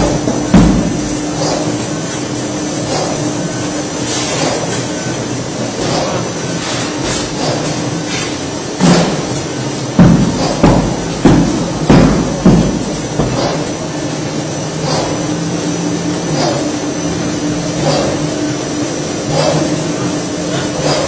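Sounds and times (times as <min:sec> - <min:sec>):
loud sharp cutting knocks: 0:00.0 - 0:01.7, 0:07.1 - 0:09.3, 0:10.0 - 0:13.8.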